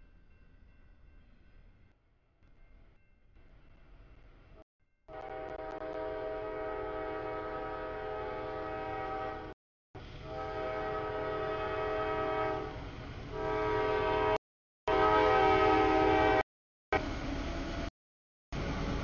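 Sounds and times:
locomotive air horn blasts: 5.1s - 9.5s, 10.2s - 16.4s.

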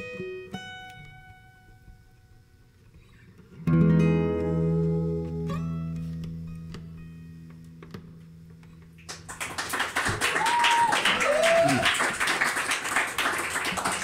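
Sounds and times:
acoustic guitar chord ringing: 3.6s - 8.9s
audience applause: 9.1s - 14.0s
cheering whoops: 10.1s - 12.5s.

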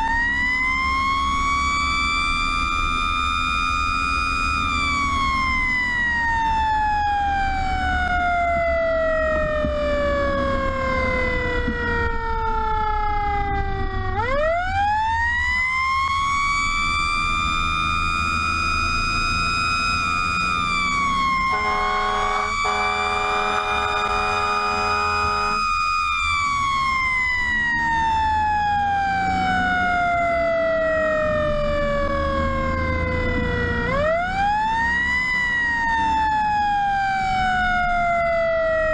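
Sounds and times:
fire truck siren wailing: 0.0s - 38.9s
diesel engine running: 21.1s - 25.7s
air horn: 21.5s - 25.6s.

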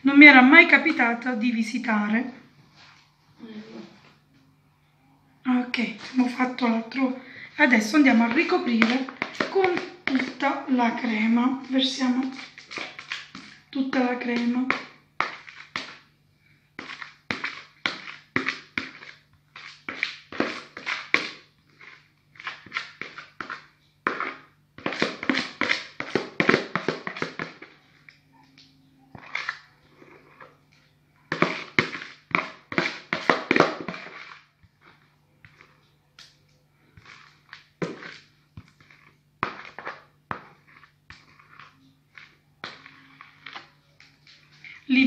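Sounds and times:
spatula scraping plastic bowl: 5.6s - 16.1s, 16.7s - 45.0s
spatula tapping bowl: 7.6s - 16.1s, 16.8s - 29.7s, 30.3s - 44.8s.

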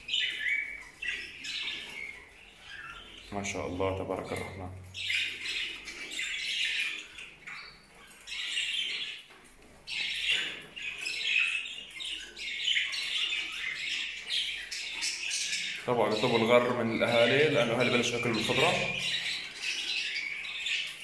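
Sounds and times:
budgerigars chattering and squawking: 0.0s - 21.0s.

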